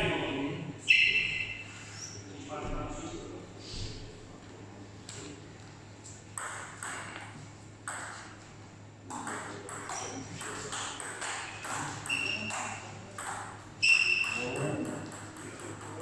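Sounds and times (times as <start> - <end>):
high squeak: 0.9 - 2.2, 13.8 - 14.6
table tennis ball bouncing: 6.3 - 8.4, 9.1 - 16.0.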